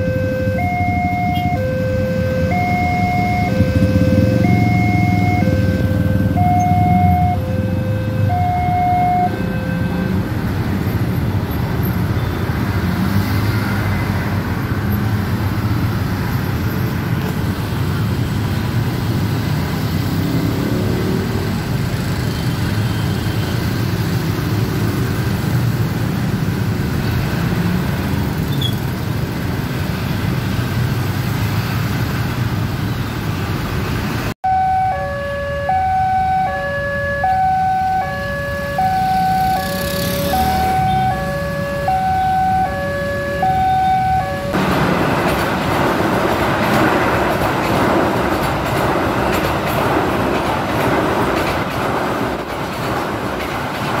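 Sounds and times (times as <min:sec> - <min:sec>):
two-note crossing warning signal: 0:00.0 - 0:10.2, 0:34.4 - 0:44.5
motorcycles and scooters driving: 0:00.0 - 0:54.0.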